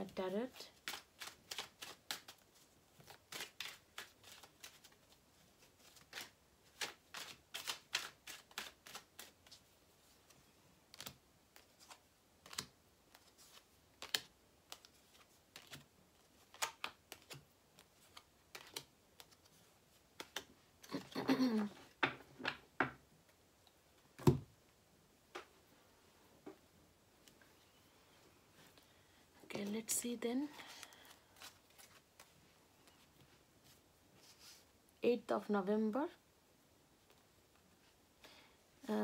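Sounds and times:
cards being shuffled: 0.6 - 22.0, 30.5 - 34.6.

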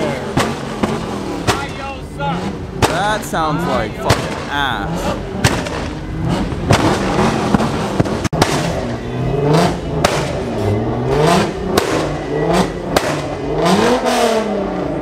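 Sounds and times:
exhaust cracks: 0.0 - 3.3, 3.9 - 10.7
car engine revving: 0.0 - 15.0.

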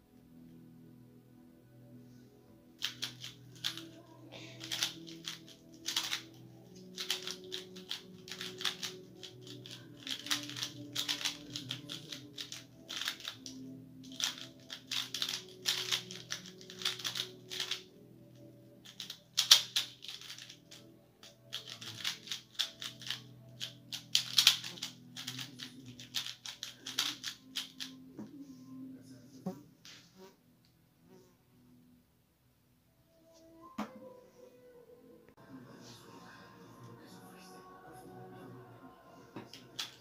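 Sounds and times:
plastic puzzle cube clacking: 2.8 - 4.0, 4.6 - 28.0, 39.5 - 40.0.

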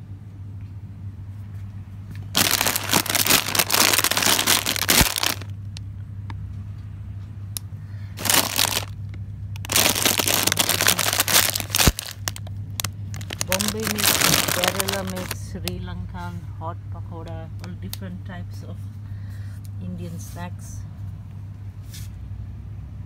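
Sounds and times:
low hum: 0.0 - 20.0
plastic snack packets crinkling: 2.2 - 5.8, 8.2 - 15.6.

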